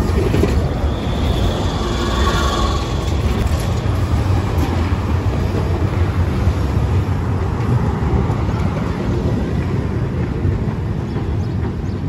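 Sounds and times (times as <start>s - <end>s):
wheels squealing on rail: 0.0s - 4.1s
tram wheels rumbling on rails: 0.0s - 12.0s.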